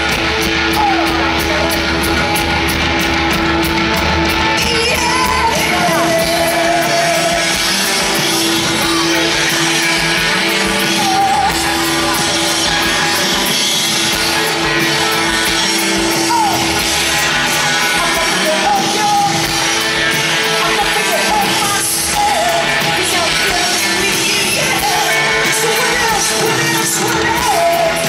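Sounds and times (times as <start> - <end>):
bass guitar: 0.0 - 28.0
drums: 0.0 - 28.0
electric guitar: 0.0 - 28.0
woman singing and shouting: 4.6 - 7.5.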